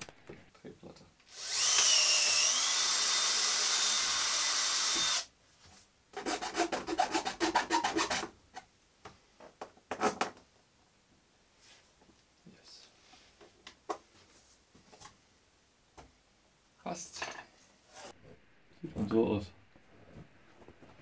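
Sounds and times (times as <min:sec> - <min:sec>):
cordless drill drilling into board: 0:01.3 - 0:05.3.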